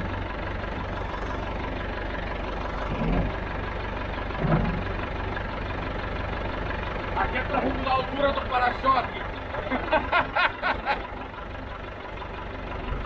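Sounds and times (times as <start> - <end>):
tractor engine idling: 0.0 - 13.0.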